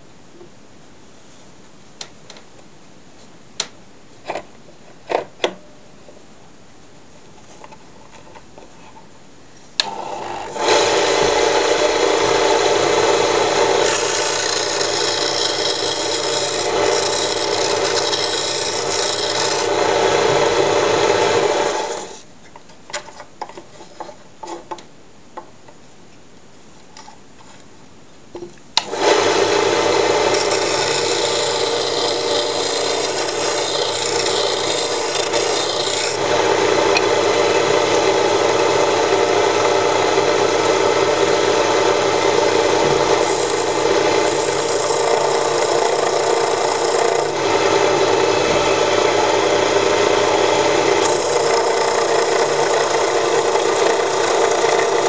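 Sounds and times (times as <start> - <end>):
chisel cutting spinning wood: 9.8 - 22.2, 28.8 - 55.0
wood lathe running: 9.8 - 22.2, 28.8 - 55.0.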